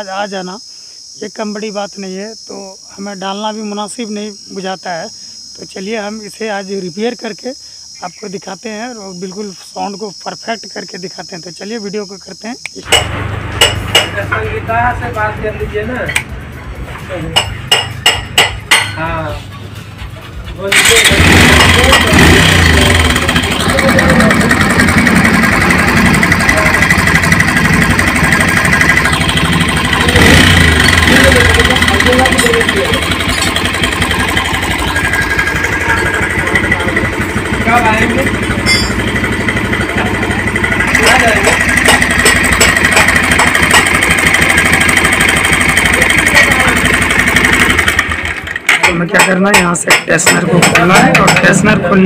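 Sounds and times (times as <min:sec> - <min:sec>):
motorcycle engine idling: 0:12.8 - 0:49.6.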